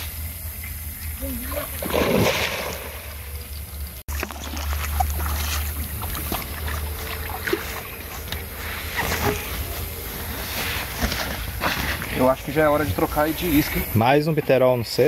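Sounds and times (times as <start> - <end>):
fish splashing: 0.4 - 10.1.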